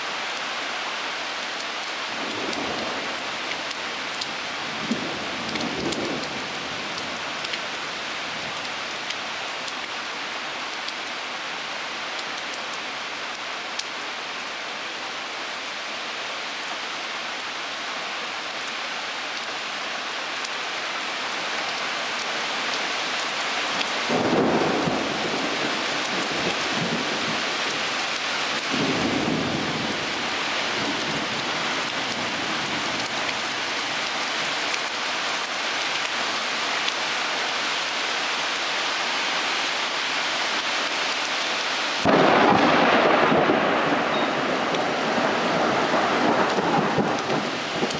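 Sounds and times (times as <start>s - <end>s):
heavy rain falling: 0.0s - 47.9s
rumble of thunder: 24.1s - 27.4s, 28.7s - 29.9s, 42.0s - 47.9s
thunder clap: 42.0s - 47.9s.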